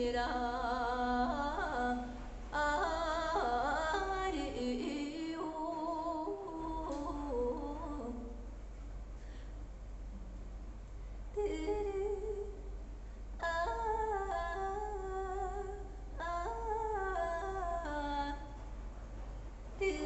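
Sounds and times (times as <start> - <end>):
woman singing unaccompanied: 0.0 - 8.5, 11.3 - 12.8, 13.4 - 18.6, 19.8 - 20.0.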